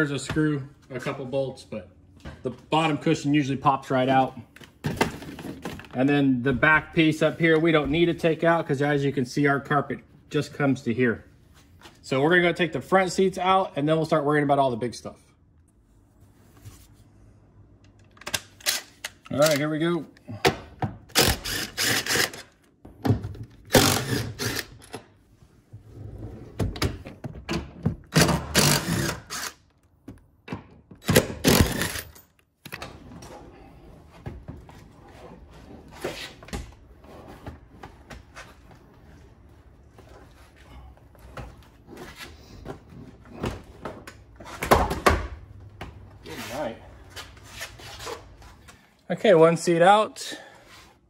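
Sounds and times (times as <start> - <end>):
impact driver running: 21.1 - 22.5, 23.7 - 24.9, 28.2 - 29.6, 31.0 - 32.2.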